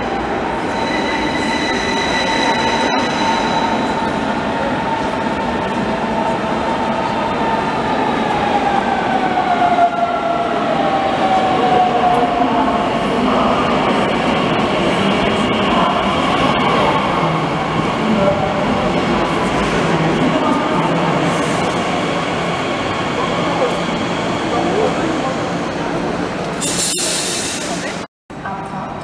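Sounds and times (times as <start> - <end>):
train braking whine: 26.6 - 27.9.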